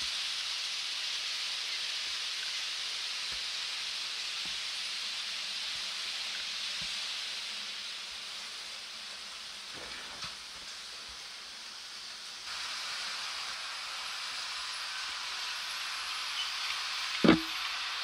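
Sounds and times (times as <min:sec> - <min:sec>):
model train rolling hiss: 0:00.0 - 0:18.0.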